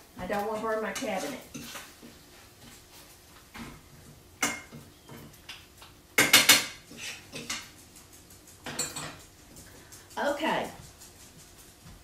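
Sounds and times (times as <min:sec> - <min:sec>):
pots and pans clattering: 0:03.6 - 0:07.9, 0:08.6 - 0:09.4.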